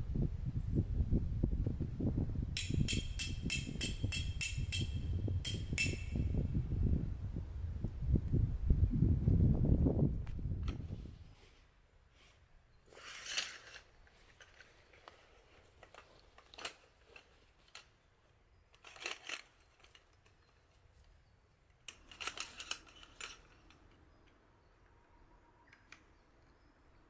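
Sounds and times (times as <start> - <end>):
faint steady background noise: 0.0 - 27.0
crisp clicks and crinkles: 13.0 - 18.0, 18.7 - 24.4.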